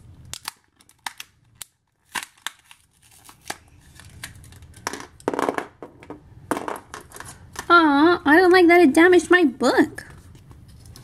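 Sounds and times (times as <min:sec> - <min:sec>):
plastic and card tearing and snapping: 0:00.2 - 0:04.8.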